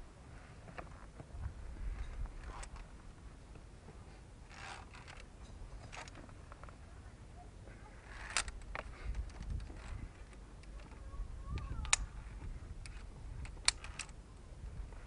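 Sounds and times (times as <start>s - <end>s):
gear and boots scraping rock: 4.5s - 5.2s
sharp metallic click: 12.8s - 14.2s.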